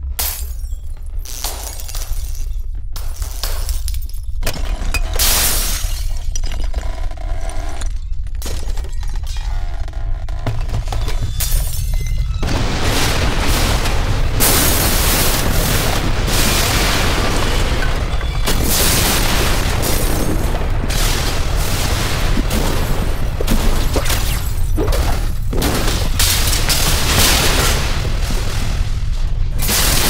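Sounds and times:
deep rumble: 0.0s - 24.0s
booming crashes: 10.5s - 24.4s.

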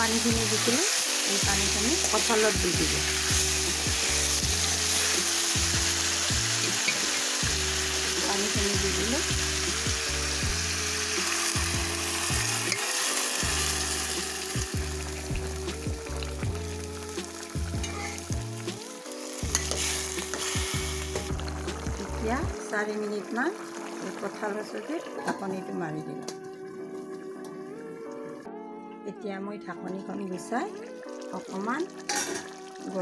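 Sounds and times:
food sizzling in oil: 0.0s - 25.5s, 30.9s - 33.0s.

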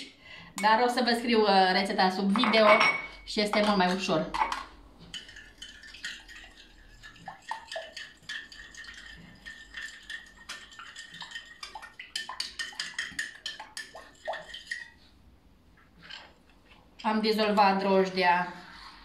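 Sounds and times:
utensil beating liquid in glass bowl: 3.6s - 15.0s.

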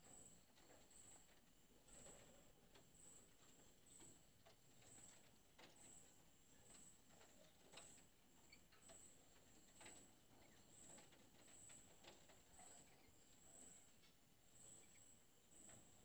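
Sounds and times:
faint high-pitched chirp: 14.5s - 15.7s.

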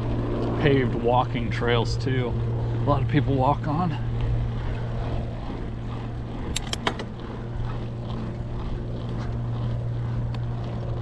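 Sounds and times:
bike rolling on pavement: 0.0s - 11.0s
sharp clicks: 6.4s - 7.1s.

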